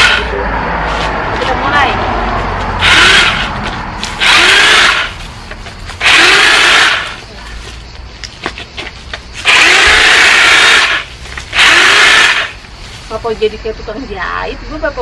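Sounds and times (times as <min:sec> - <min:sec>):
electric hedge trimmer buzzing: 0:02.8 - 0:03.5, 0:04.1 - 0:05.2, 0:06.0 - 0:07.2, 0:09.4 - 0:12.6.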